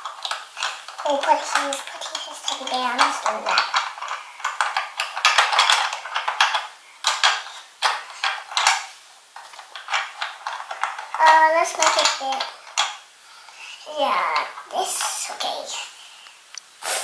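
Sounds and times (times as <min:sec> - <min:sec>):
plastic toy pieces clicking: 0:00.0 - 0:08.8, 0:09.4 - 0:13.0.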